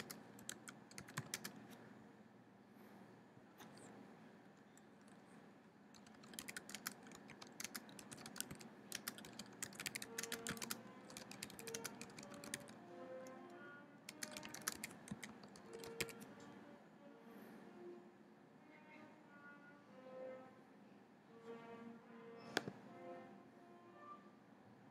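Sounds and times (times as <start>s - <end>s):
keyboard key clicks: 6.0s - 12.7s, 14.1s - 16.2s.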